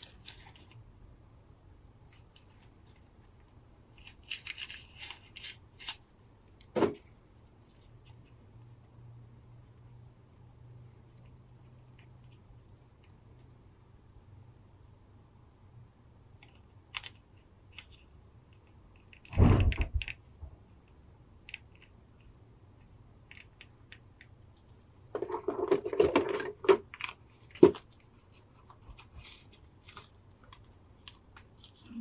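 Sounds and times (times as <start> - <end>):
plastic knock and rustle: 25.1 - 27.9.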